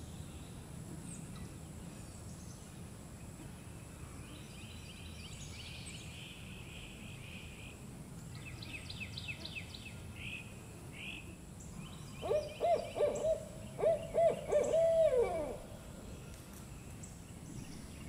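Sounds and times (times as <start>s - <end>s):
small birds chattering and trilling: 0.0s - 18.0s
owl hooting: 12.2s - 15.7s.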